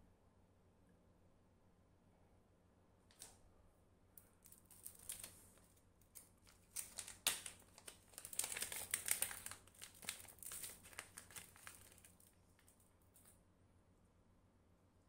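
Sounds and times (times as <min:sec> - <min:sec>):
packaging crinkling: 0:04.2 - 0:13.3.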